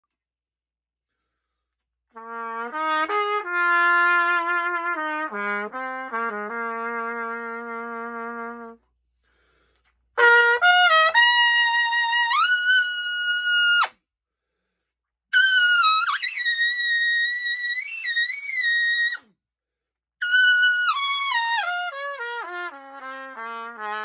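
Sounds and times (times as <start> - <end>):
solo trumpet playing: 2.1 - 8.8, 10.2 - 13.9, 20.2 - 24.0.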